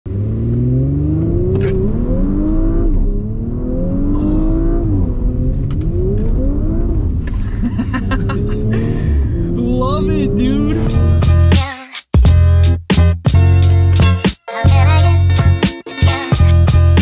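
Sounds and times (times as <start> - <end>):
car engine accelerating: 0.1 - 11.5.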